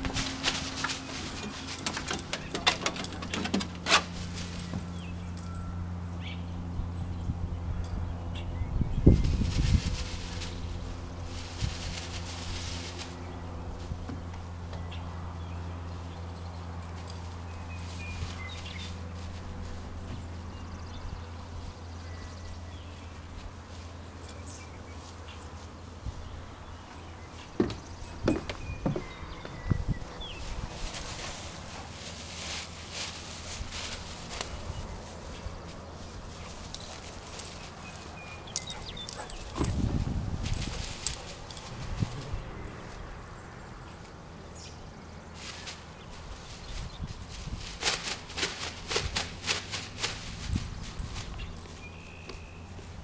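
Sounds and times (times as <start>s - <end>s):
footsteps on wooden deck: 0.0s - 5.0s, 26.9s - 30.0s.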